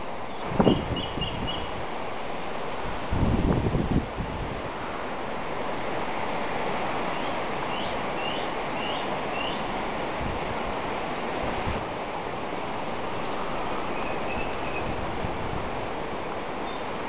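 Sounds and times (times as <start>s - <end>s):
breeze rustling leaves: 0.0s - 17.0s
bird chirping: 7.1s - 9.7s, 13.8s - 16.0s, 16.6s - 16.9s.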